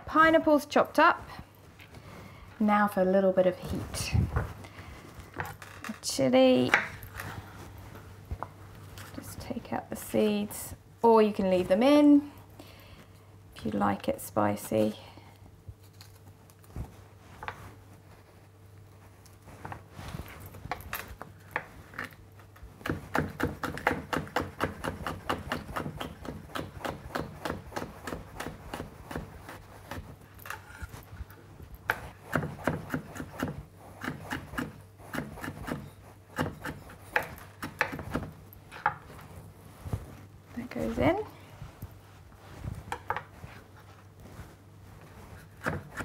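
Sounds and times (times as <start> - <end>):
knife chopping on wooden board: 22.8 - 30.1, 32.3 - 38.3, 45.5 - 46.0.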